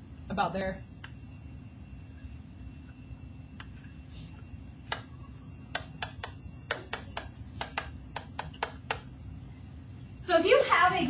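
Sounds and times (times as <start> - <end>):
low steady hum: 0.0 - 11.0
stylus tapping on a tablet: 4.9 - 5.1, 5.7 - 9.1.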